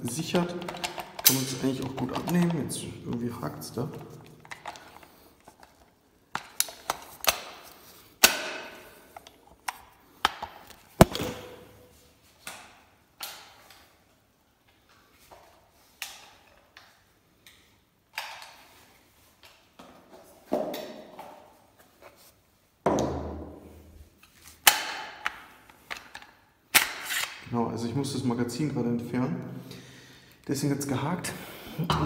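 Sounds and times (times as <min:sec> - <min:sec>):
knocks and clacks of rifle handling: 0:00.0 - 0:14.1, 0:24.2 - 0:27.4.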